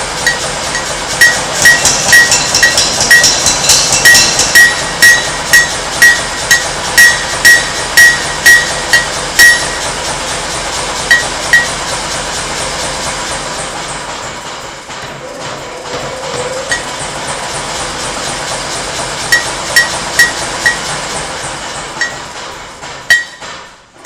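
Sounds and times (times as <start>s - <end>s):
hammer striking metal on anvil: 0.0s - 12.2s, 16.6s - 17.4s, 19.2s - 24.0s.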